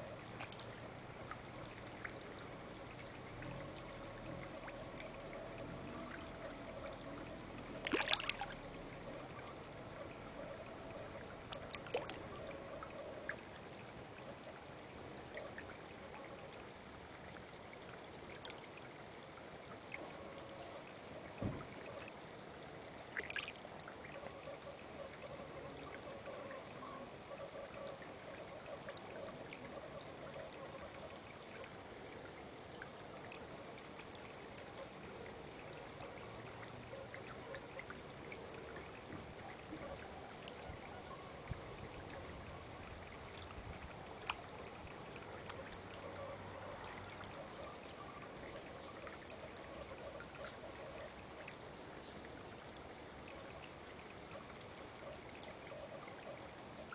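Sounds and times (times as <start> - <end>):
water pouring into a pond: 0.0 - 56.9
small splashes: 0.3 - 9.5, 11.2 - 12.4, 23.0 - 24.1, 42.0 - 49.5.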